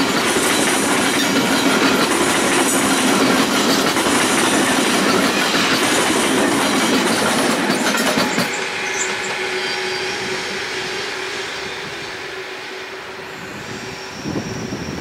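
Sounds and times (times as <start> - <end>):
train wheels rumbling and clacking: 0.0 - 15.0
wheel squeal: 7.8 - 12.2, 13.3 - 15.0.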